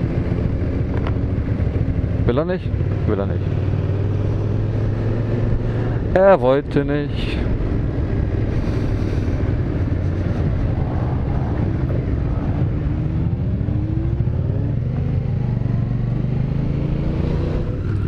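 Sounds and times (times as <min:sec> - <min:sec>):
motorcycle engine accelerating: 0:00.0 - 0:06.3, 0:07.4 - 0:18.0
wind rushing: 0:07.2 - 0:15.8.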